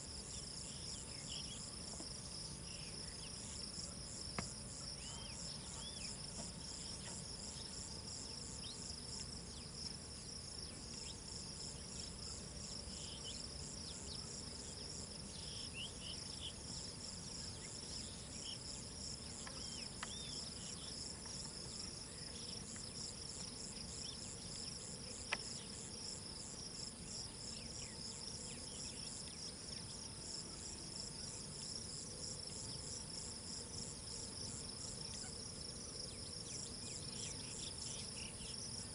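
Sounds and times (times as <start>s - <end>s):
insects chirring: 0.0s - 38.9s.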